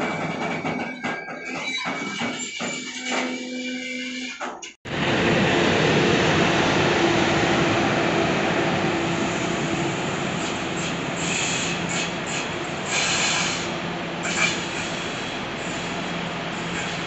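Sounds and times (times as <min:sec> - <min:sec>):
train wheels rumbling on rail: 0:04.4 - 0:17.0.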